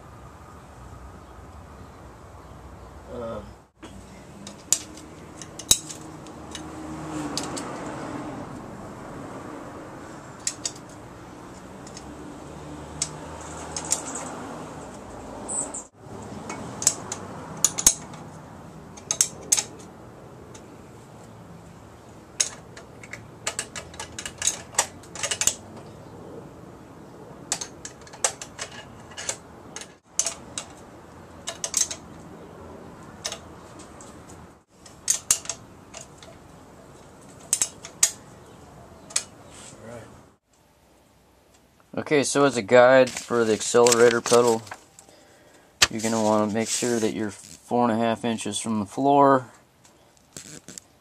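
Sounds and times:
metal parts and tools clinking: 0:04.4 - 0:07.7, 0:10.4 - 0:12.1, 0:13.0 - 0:14.3, 0:16.4 - 0:18.3, 0:18.9 - 0:19.9, 0:22.4 - 0:26.0, 0:27.5 - 0:32.2, 0:33.2 - 0:34.1, 0:34.8 - 0:38.4, 0:43.0 - 0:45.1.

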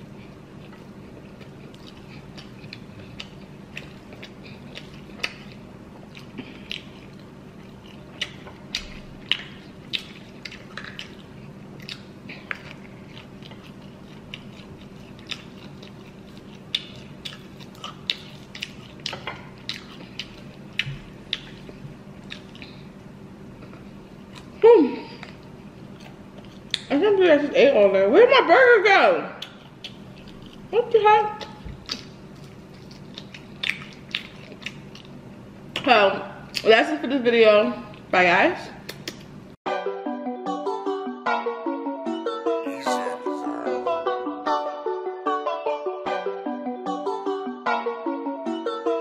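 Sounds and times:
close chewing and lip smacks: 0:00.0 - 0:22.9, 0:23.6 - 0:24.6, 0:25.2 - 0:26.9, 0:29.4 - 0:30.7, 0:31.4 - 0:35.9, 0:38.8 - 0:39.3
faint steady hum: 0:00.0 - 0:39.6.

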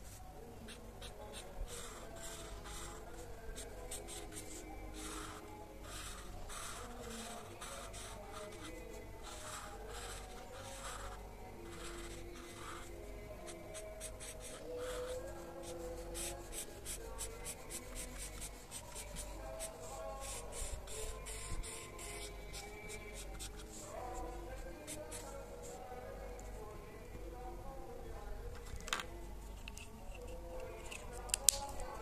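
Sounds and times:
marker scribbling on paper: 0:00.0 - 0:12.9, 0:13.5 - 0:25.8.

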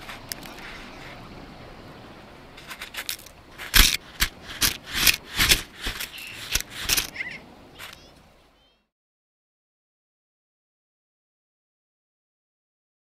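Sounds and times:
steady hiss: 0:00.0 - 0:08.6
camera scraping against snow: 0:02.6 - 0:08.1.

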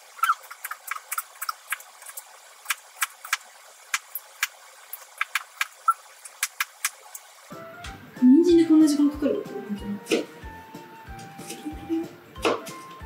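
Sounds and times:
knife striking plastic cutting board: 0:12.4 - 0:12.9.

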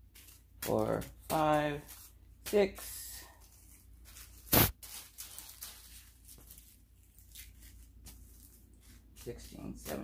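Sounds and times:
plastic zip bags crinkling: 0:02.8 - 0:10.0.

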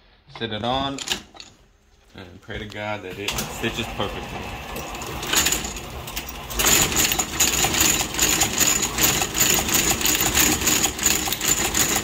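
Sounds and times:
stitching machine clattering: 0:03.2 - 0:12.0.

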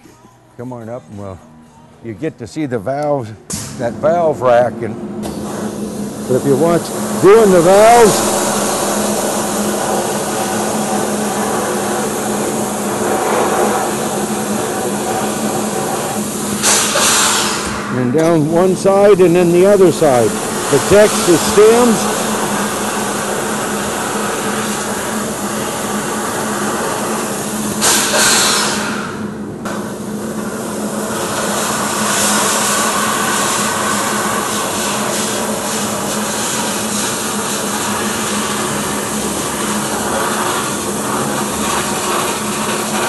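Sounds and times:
steady hum: 0:00.0 - 0:43.0
blast nozzle hissing: 0:05.2 - 0:29.1.

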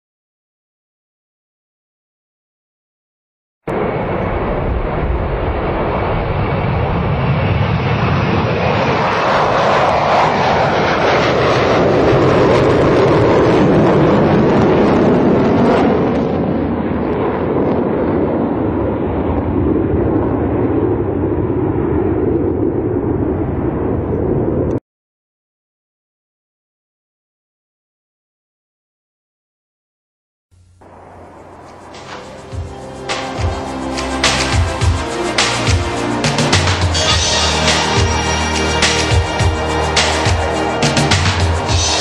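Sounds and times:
jet airliner landing: 0:03.7 - 0:24.8, 0:30.6 - 0:42.0.

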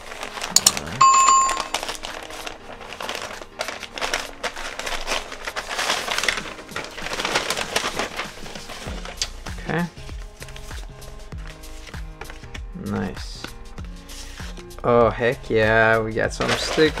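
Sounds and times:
package wrapping crinkling: 0:00.0 - 0:09.4, 0:16.4 - 0:17.0
steady high tone: 0:01.0 - 0:01.8.

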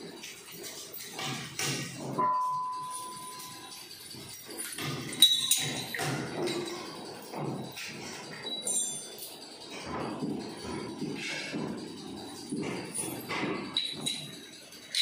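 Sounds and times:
steel parts clinking: 0:00.2 - 0:10.0, 0:12.8 - 0:15.0.

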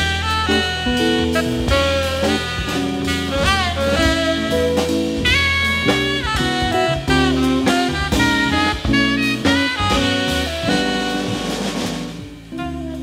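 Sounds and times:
double bass: 0:00.0 - 0:13.0
drum kit cymbals: 0:00.0 - 0:13.0
saxophone melody: 0:00.0 - 0:13.0.

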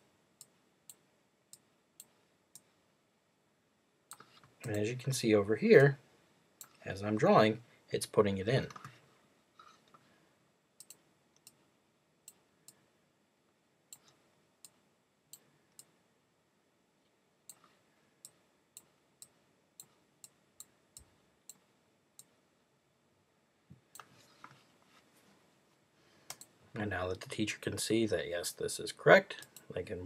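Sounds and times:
computer mouse clicks: 0:04.1 - 0:04.8, 0:10.8 - 0:11.6, 0:26.3 - 0:26.5.

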